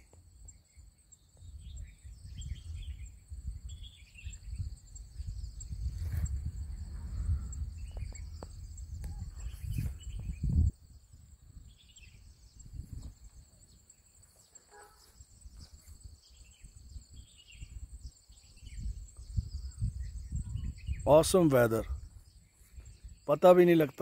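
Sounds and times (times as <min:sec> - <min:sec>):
high drone of insects: 0:00.0 - 0:24.0
low rumble on microphone: 0:01.4 - 0:13.8, 0:15.1 - 0:23.2
short bird chirps: 0:11.7 - 0:17.8.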